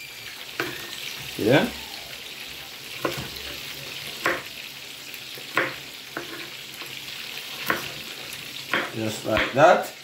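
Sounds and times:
fish sizzling in oil: 0:00.0 - 0:10.0
knife chopping on wooden board: 0:03.0 - 0:03.4, 0:04.2 - 0:04.5, 0:05.5 - 0:06.5, 0:07.6 - 0:08.0, 0:08.7 - 0:09.6.

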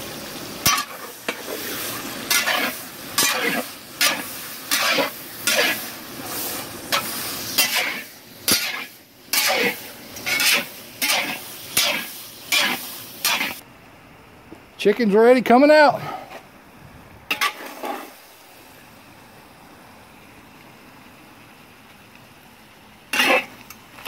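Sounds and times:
chicken sizzling in a pot: 0:00.0 - 0:13.6, 0:17.3 - 0:24.0
metal paddle scraping a pot: 0:07.6 - 0:13.6, 0:23.1 - 0:23.5.

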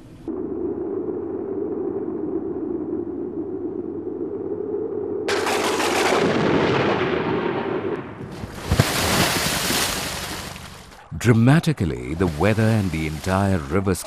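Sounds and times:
low droning tone: 0:00.0 - 0:05.3
thunder rumbling: 0:00.0 - 0:11.0
thunder crack: 0:05.3 - 0:09.7.

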